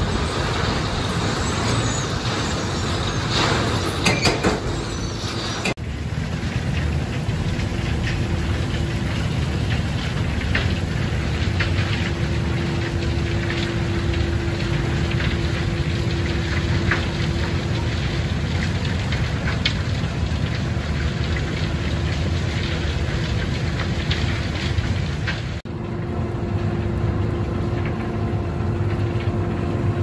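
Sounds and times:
coal train rumbling: 0.0s - 30.0s
steady hum: 5.9s - 23.2s.

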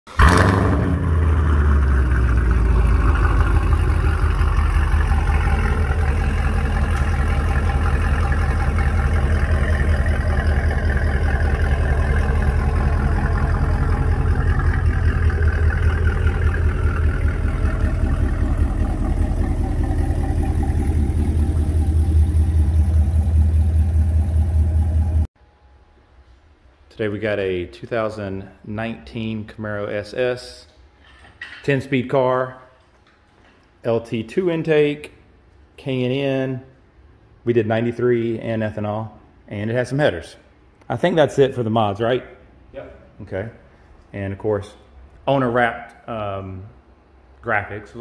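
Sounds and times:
car engine running on dyno: 0.2s - 25.3s.

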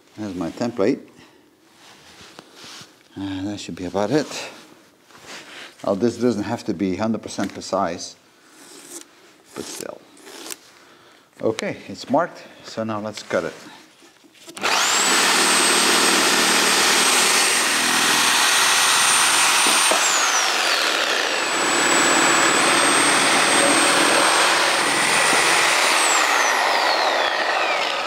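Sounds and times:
reciprocating saw cutting wood: 14.5s - 28.0s.

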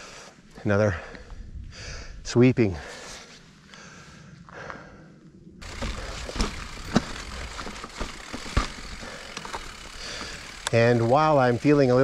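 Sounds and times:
tyres and wind rumbling: 0.0s - 2.8s, 3.4s - 12.0s
bike knocking and rattling: 5.6s - 12.0s.

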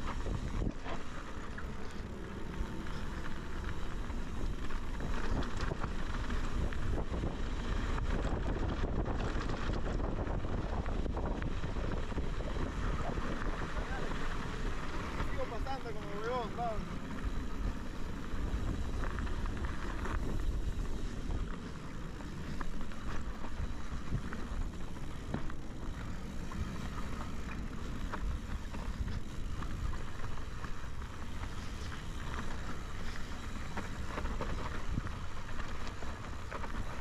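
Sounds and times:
bike rattling: 0.0s - 37.0s
tyres crunching over gravel: 0.0s - 37.0s
wind rumble on microphone: 0.0s - 37.0s.

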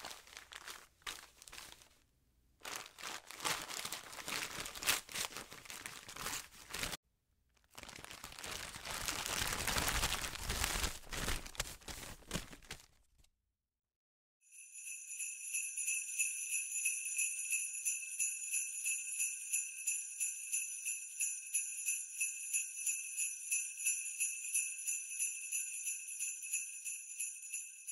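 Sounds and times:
jingle bells shaken: 14.5s - 27.9s.

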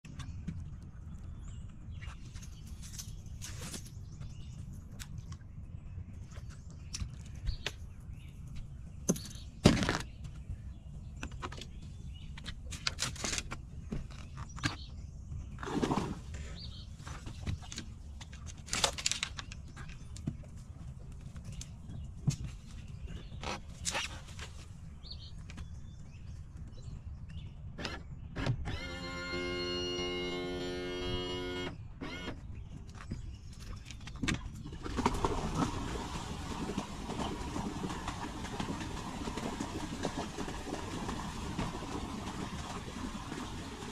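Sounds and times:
branches scraping boat hull: 2.0s - 4.4s, 11.6s - 19.4s, 22.5s - 25.2s.

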